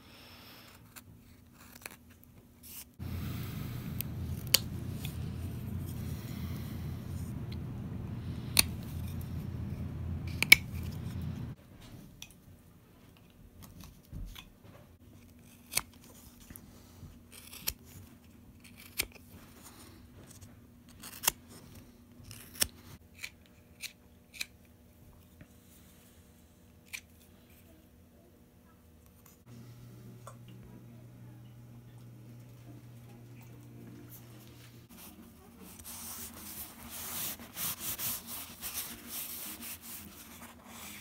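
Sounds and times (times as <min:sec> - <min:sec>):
low steady hum: 0:03.0 - 0:12.3, 0:27.1 - 0:41.0.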